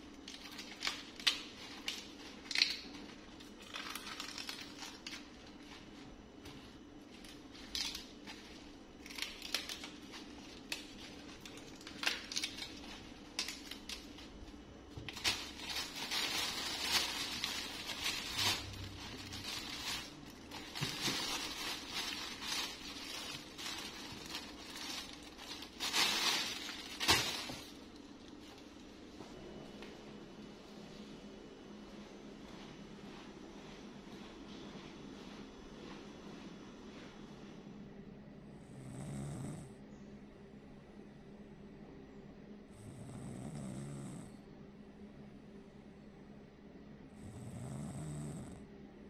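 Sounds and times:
plastic bags rustling: 0.1 - 6.1, 6.7 - 29.1
produce and baskets knocking: 14.9 - 27.7.

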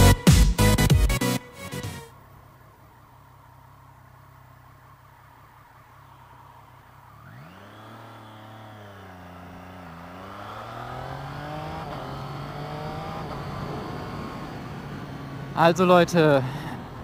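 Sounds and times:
motorcycle engine revving: 4.4 - 17.0.

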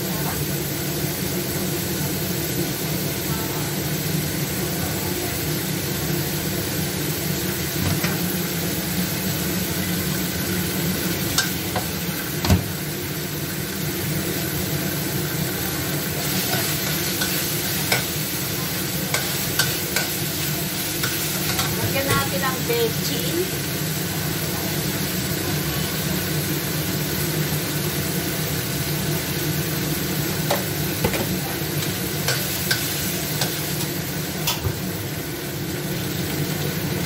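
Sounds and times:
meat sizzling in a wok: 0.0 - 37.0.

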